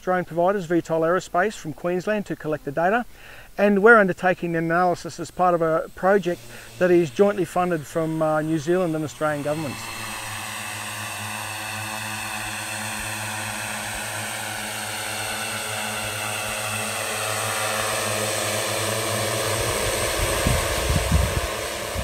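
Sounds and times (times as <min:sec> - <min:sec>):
drone propellers whirring: 0:05.6 - 0:22.0
gusty low rumbling: 0:19.3 - 0:22.0.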